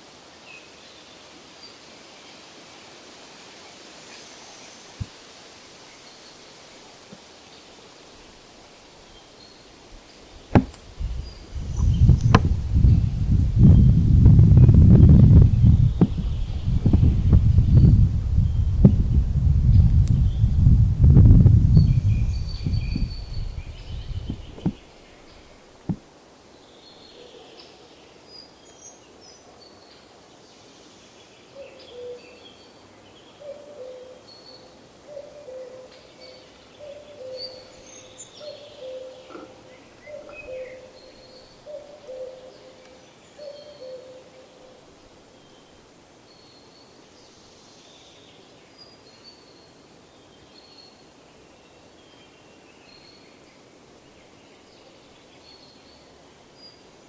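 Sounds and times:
small birds chirping and whistling: 0:11.0 - 0:18.8, 0:21.6 - 0:25.5, 0:33.4 - 0:44.3.

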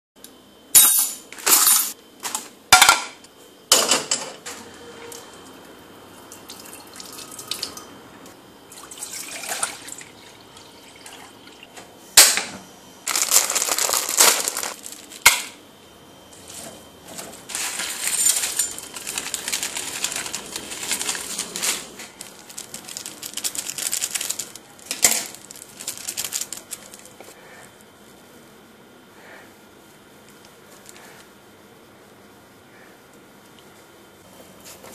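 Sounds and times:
foil sachets crinkling and tearing: 0:13.1 - 0:15.5, 0:17.4 - 0:27.3.

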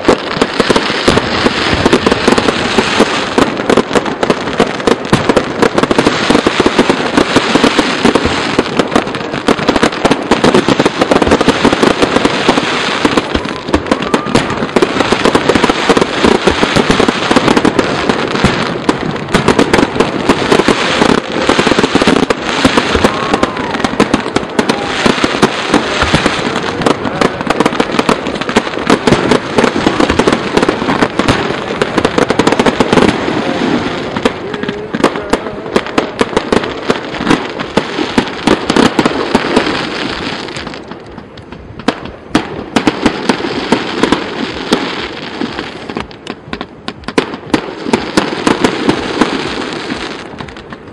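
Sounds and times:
firework shells bursting: 0:00.0 - 0:33.2.

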